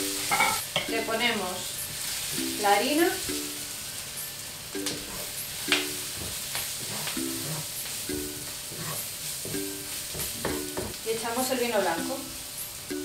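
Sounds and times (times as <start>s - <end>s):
background music with plucked notes: 0.0s - 11.0s, 11.6s - 13.0s
vegetables sizzling in a frying pan: 0.0s - 13.0s
wooden spoon scraping a pan: 6.1s - 7.8s, 8.7s - 9.3s.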